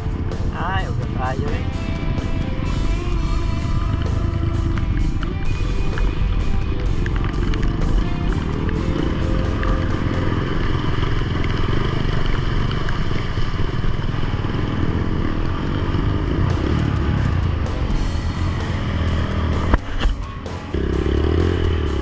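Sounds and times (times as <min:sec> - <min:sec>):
background music: 0:00.0 - 0:11.9, 0:16.0 - 0:22.0
dirt bike engine running: 0:00.0 - 0:22.0.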